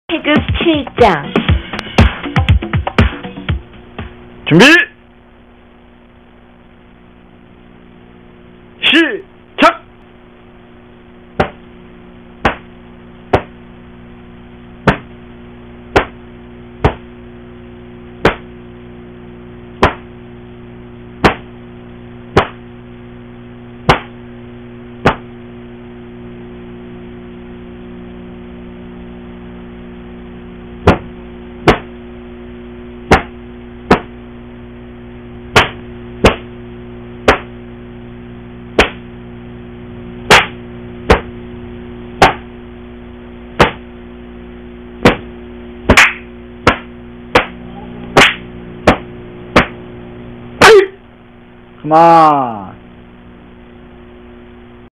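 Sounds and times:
steady low hum: 0.1s - 54.9s
uniform fabric snapping: 45.9s - 47.5s.

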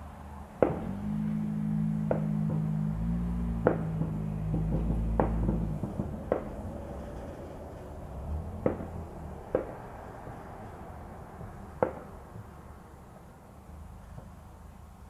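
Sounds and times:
low steady hum: 0.0s - 9.6s
distant fireworks bangs: 0.6s - 7.9s, 8.5s - 10.6s, 11.8s - 12.4s.

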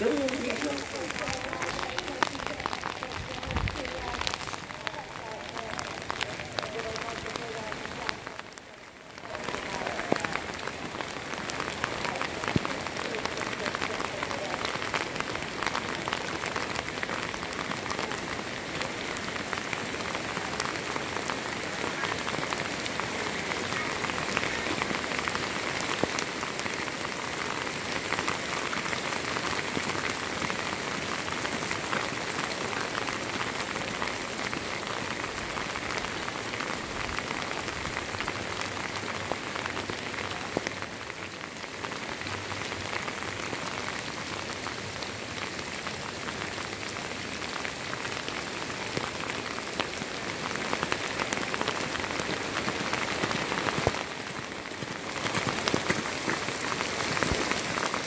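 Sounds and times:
heavy rain falling: 0.0s - 58.0s.

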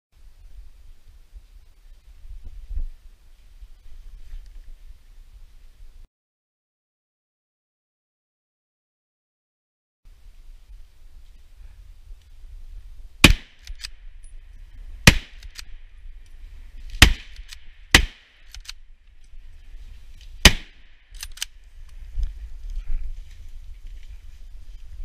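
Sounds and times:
rifle shots: 13.2s - 14.0s, 15.0s - 15.7s, 16.9s - 18.8s, 20.4s - 21.5s
faint rifle clicks: 18.4s - 19.2s, 21.1s - 22.0s.

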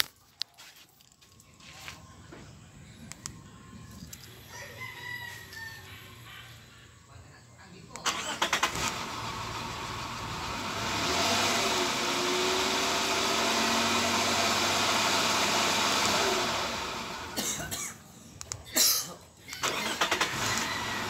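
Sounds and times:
car engine running: 8.2s - 17.4s, 20.0s - 21.0s.

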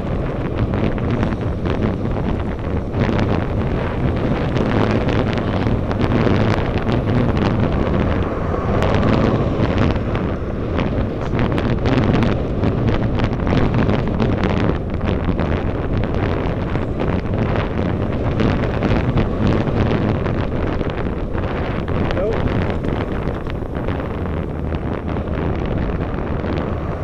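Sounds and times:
wind buffeting on microphone: 0.0s - 27.0s.

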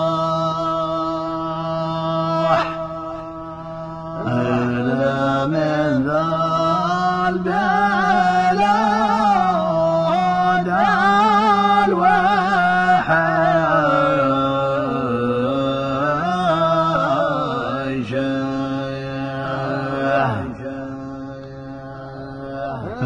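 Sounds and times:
held drone note: 0.0s - 5.8s
person singing ornamented melody: 0.0s - 23.0s.

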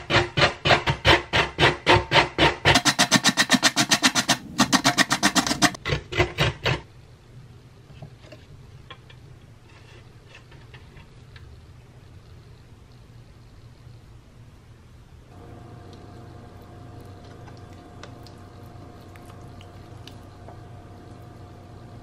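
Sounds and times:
carrot grated on metal grater: 0.0s - 6.8s.

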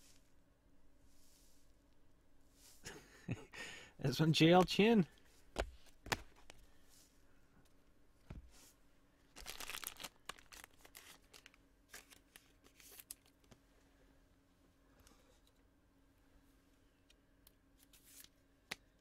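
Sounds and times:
wrapper rustling: 9.3s - 13.4s.

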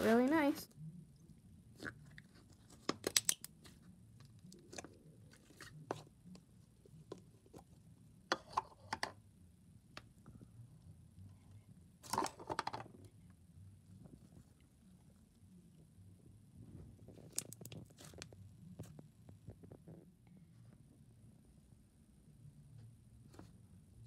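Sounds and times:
sticky slime clicks and crackles: 2.9s - 3.6s.

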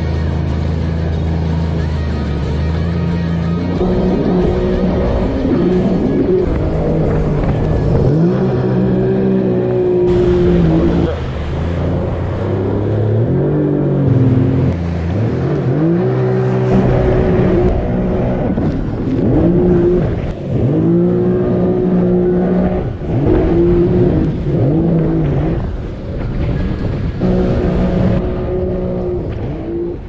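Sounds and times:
jetski engine revving: 0.0s - 30.0s.

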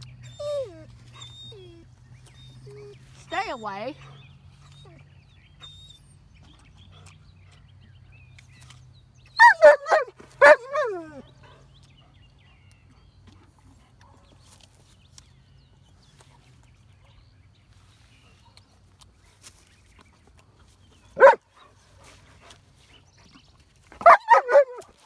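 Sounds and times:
dog barking: 9.4s - 11.0s, 21.2s - 21.4s, 24.0s - 24.8s.

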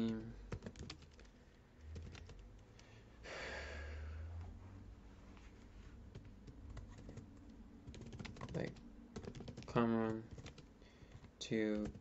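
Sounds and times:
keyboard keystrokes: 0.0s - 1.3s, 6.2s - 12.0s
breathy exhale: 2.8s - 4.4s.

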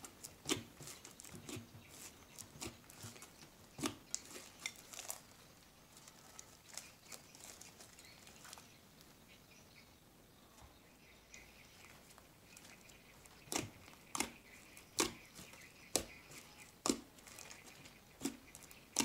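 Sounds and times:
slime squelching and popping: 15.0s - 19.0s.

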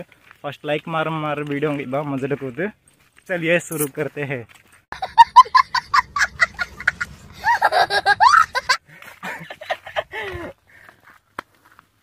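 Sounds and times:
young child laughing: 5.0s - 10.6s.

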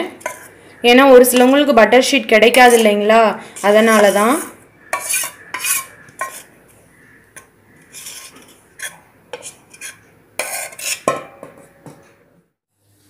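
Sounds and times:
spoon scraping steel bowl: 0.1s - 1.7s, 2.3s - 6.6s, 7.3s - 11.2s.

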